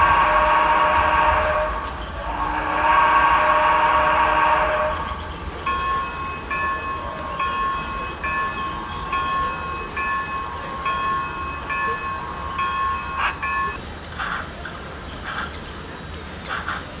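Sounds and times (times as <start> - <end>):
steam locomotive whistle blasts: 0.0 - 5.5.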